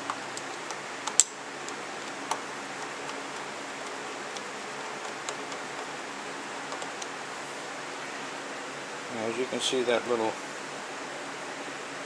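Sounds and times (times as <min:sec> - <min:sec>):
screwdriver metal ticks: 0:00.0 - 0:06.0, 0:06.6 - 0:07.1.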